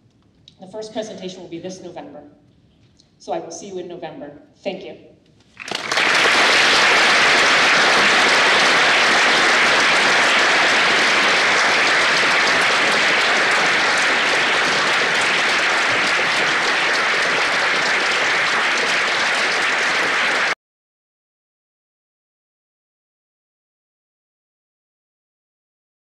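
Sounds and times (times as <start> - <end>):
audience applauding: 5.6 - 20.6.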